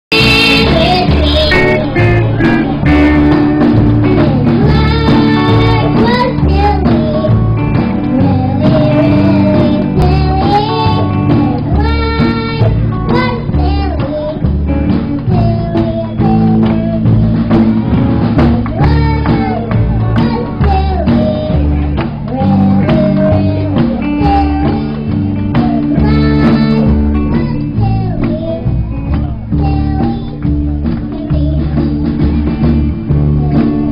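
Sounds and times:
steady bass beat: 0.1 - 6.7
live band playing: 0.1 - 33.9
person singing: 0.1 - 33.9.

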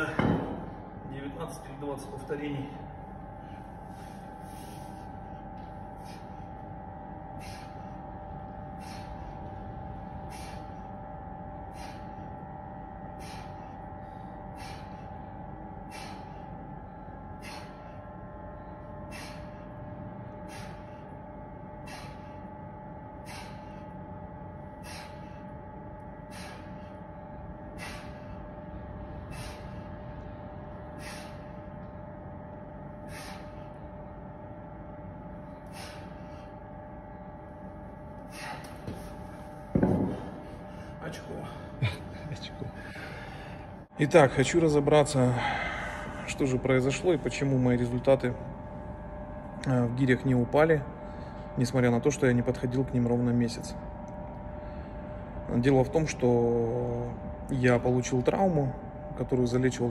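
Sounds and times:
steady hum: 0.0 - 59.9
man's sharp hissing breaths: 3.1 - 32.0, 32.9 - 34.2, 35.0 - 39.6, 45.3 - 46.3.

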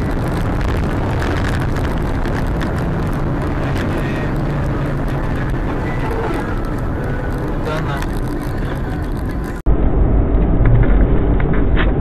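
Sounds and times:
car engine and tyre noise: 0.0 - 12.0
low hum: 0.0 - 12.0.

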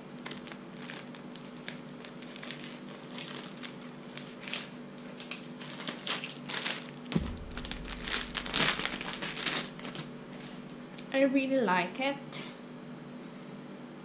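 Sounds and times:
plastic packaging crinkling: 0.1 - 10.8.

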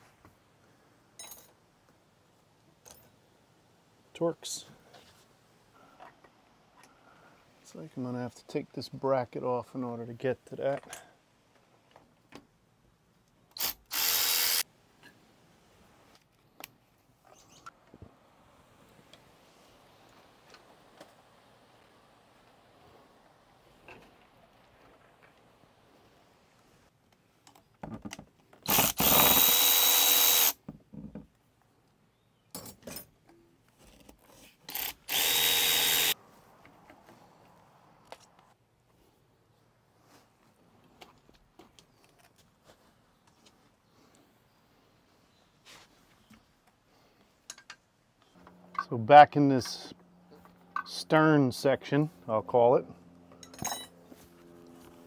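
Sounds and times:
cordless drill running: 13.6 - 14.6, 28.7 - 30.6, 34.7 - 36.2.

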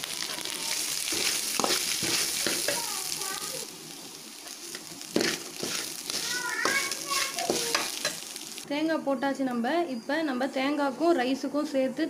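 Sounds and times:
coconut sizzling in hot oil: 0.0 - 8.7
steel spoon scraping pan: 0.2 - 2.9, 4.7 - 8.3.

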